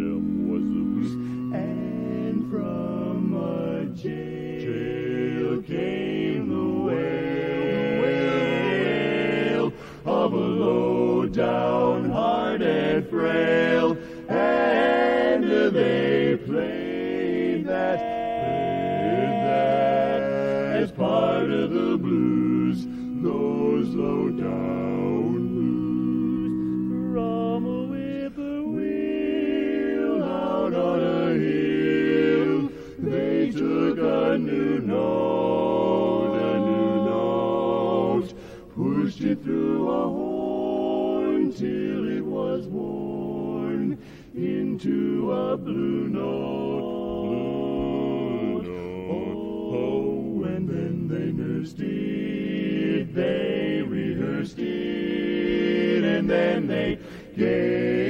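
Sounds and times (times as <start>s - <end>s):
male vocal quartet singing: 0.0s - 58.0s.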